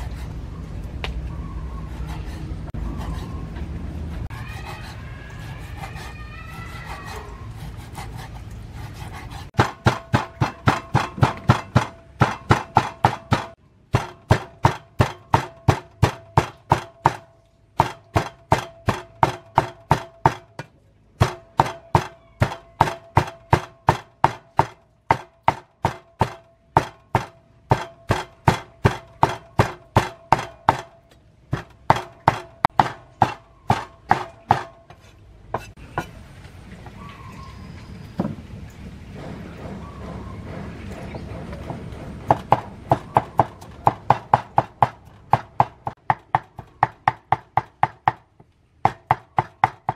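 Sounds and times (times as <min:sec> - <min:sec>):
cleaver chopping on wooden board: 0:09.6 - 0:35.0.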